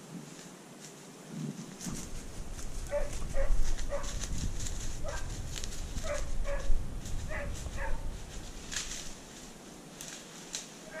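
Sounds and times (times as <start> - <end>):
rustle of brush: 0.0 - 11.0
steady low rumble: 1.9 - 9.9
hound barking: 2.8 - 4.2, 5.0 - 5.3, 6.0 - 8.1.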